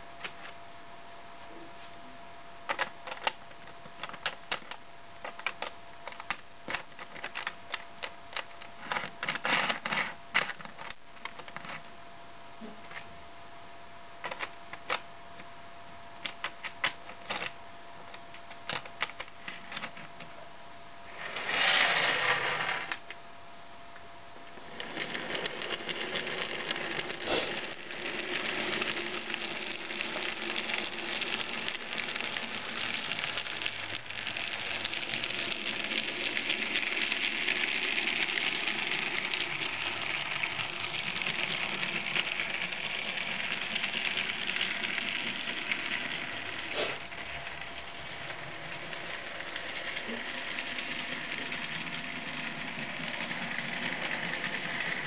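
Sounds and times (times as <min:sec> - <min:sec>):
model train motor whirring: 0:21.1 - 0:23.0, 0:24.6 - 0:55.0.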